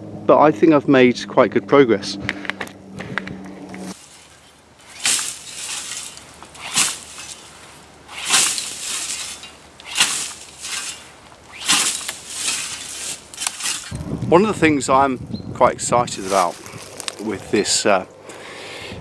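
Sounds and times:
scythe swishing through dry grass: 0:03.8 - 0:14.0, 0:16.2 - 0:17.1.

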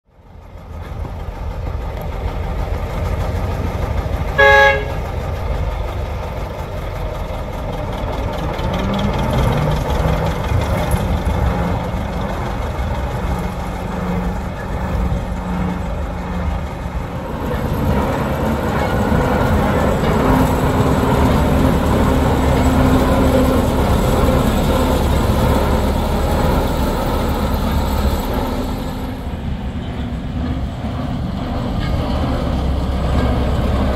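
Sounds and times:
diesel locomotive engine running: 0:00.0 - 0:33.9
locomotive horn toot: 0:04.3 - 0:05.2.

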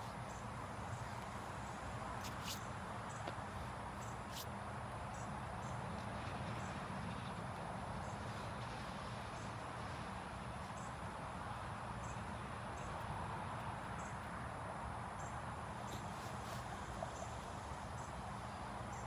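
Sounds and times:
outdoor background noise: 0:00.0 - 0:19.0.

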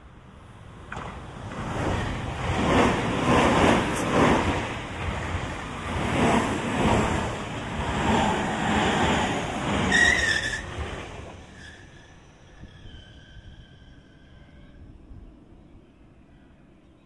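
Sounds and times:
train wheels clattering on rails: 0:00.8 - 0:10.6
high squeal: 0:09.9 - 0:15.1.

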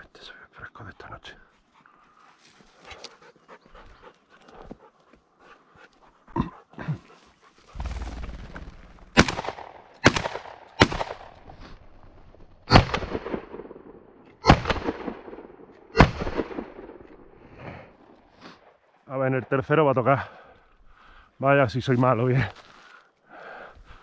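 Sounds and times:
rushing noise: 0:07.8 - 0:09.2
shotgun shots: 0:07.8 - 0:11.4, 0:12.7 - 0:17.0
slowed dull shotgun shots: 0:07.8 - 0:11.6, 0:12.6 - 0:17.2.

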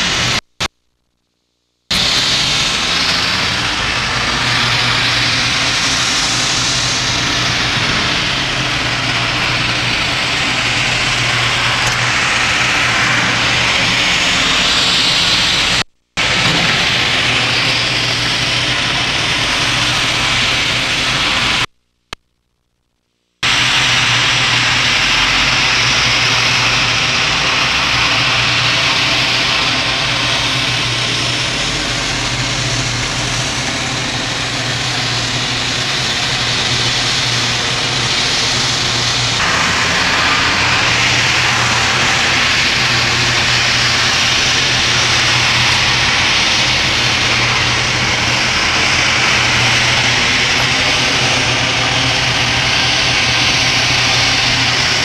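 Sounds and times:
engine-like roar with low hum: 0:01.9 - 0:21.7, 0:23.4 - 0:55.0.

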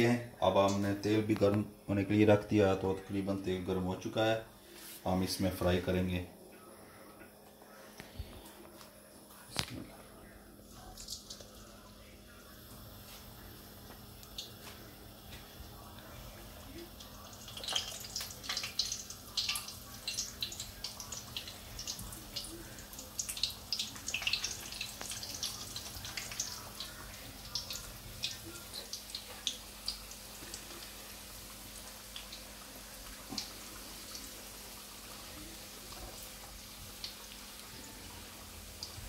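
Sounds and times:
oil crackling and popping: 0:10.8 - 0:11.8, 0:13.3 - 0:39.0.

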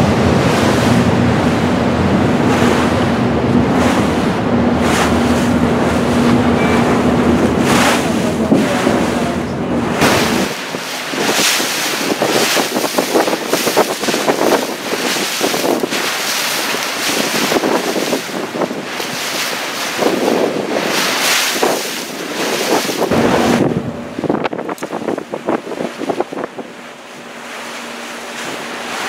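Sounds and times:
low engine hum: 0:00.0 - 0:29.0
water rushing alongside boat: 0:00.0 - 0:29.0
wind buffeting microphone: 0:00.0 - 0:29.0.

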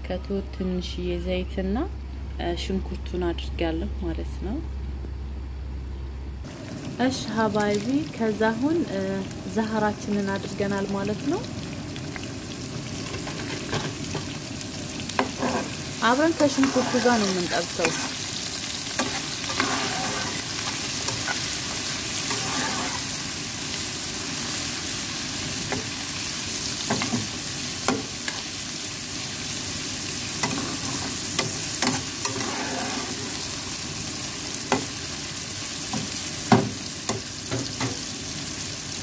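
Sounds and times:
vegetables sizzling in oil: 0:06.4 - 0:39.0
metal spoon scraping pan: 0:15.2 - 0:18.2, 0:19.0 - 0:23.2, 0:30.4 - 0:33.4.

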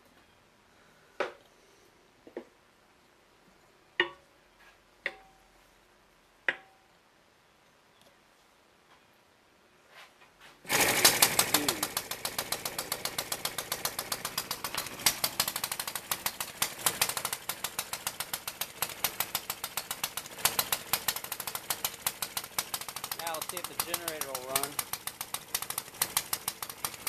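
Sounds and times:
small engine exhaust pops: 0:10.7 - 0:27.0.

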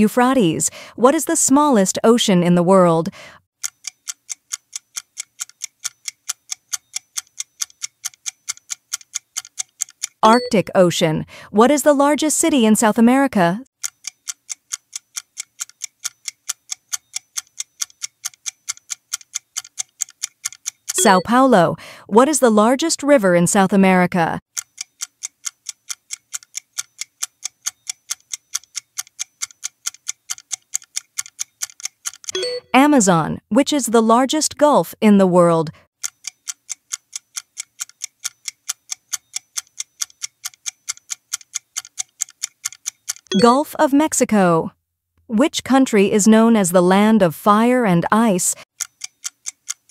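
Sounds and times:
fast clock ticking: 0:03.1 - 0:10.7, 0:13.8 - 0:21.9, 0:24.5 - 0:32.9, 0:36.0 - 0:43.8, 0:48.2 - 0:49.9.

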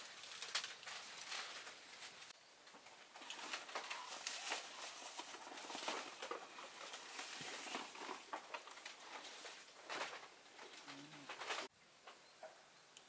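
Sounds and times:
fishing gear clicks and rustles: 0:03.2 - 0:11.7.

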